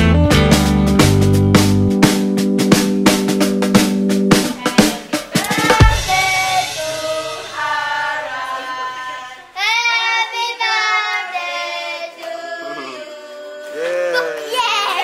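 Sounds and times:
several voices singing: 4.8 - 14.7.

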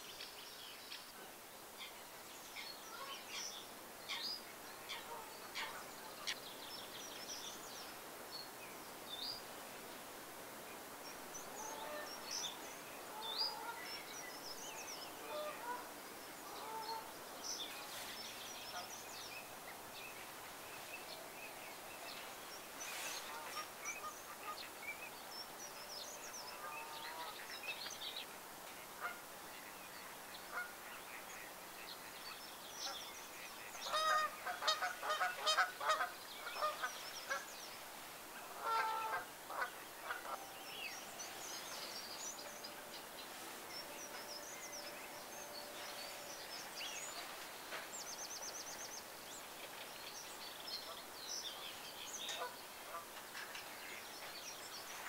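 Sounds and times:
small birds chirping: 10.7 - 55.0
waterfowl calling: 11.6 - 12.2, 13.1 - 13.9, 15.2 - 17.1, 32.8 - 37.5, 38.4 - 47.5, 52.3 - 53.2.

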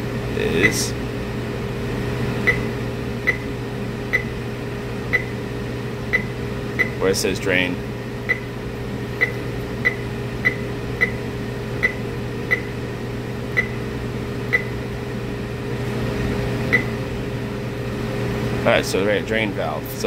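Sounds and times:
steady low hum: 0.0 - 20.0
control panel beeps: 2.4 - 3.5, 4.1 - 4.4, 5.1 - 5.4, 6.1 - 7.0, 8.3 - 8.5, 9.2 - 11.2, 11.8 - 12.7, 13.6 - 13.8, 14.5 - 14.8, 16.7 - 17.0.

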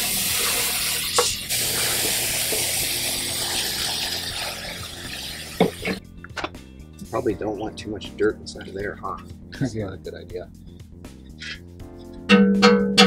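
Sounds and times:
hose nozzle spraying water: 0.0 - 6.0.

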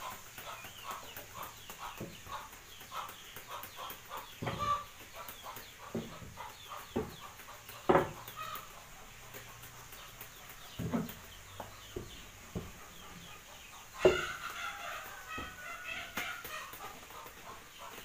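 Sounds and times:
paddle knocking against basin: 7.8 - 8.2.

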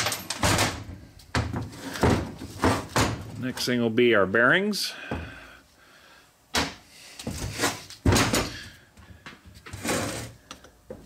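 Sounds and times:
metal parts clunking: 0.0 - 3.4.

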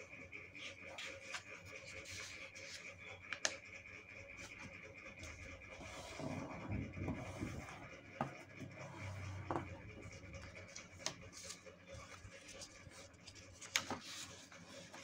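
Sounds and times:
paper rustling and creasing: 10.0 - 15.0.

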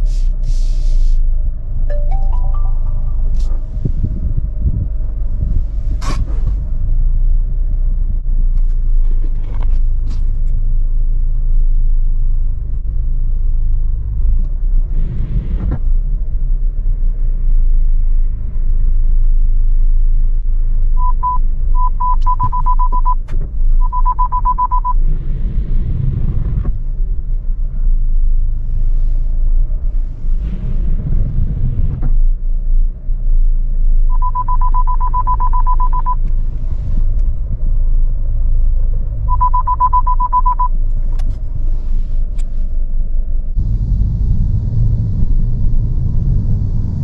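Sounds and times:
low car cabin rumble: 0.0 - 47.0
parking sensor beeps: 1.9 - 3.2, 21.0 - 25.0, 34.1 - 36.2, 39.3 - 40.8.

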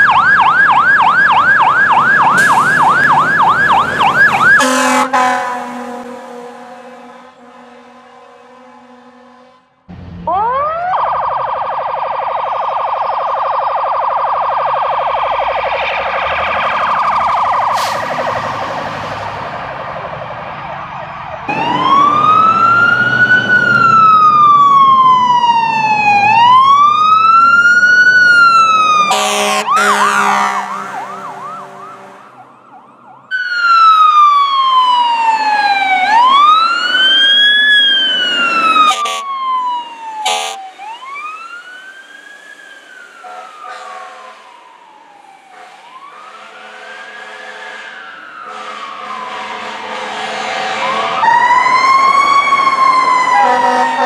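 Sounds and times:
electronic wail siren: 0.0 - 54.0
fire truck siren fluttering: 0.0 - 54.0
horn blasts: 4.6 - 9.8, 29.1 - 32.4, 38.9 - 39.3, 40.2 - 40.7, 43.3 - 44.4, 45.5 - 51.4, 53.4 - 54.0.

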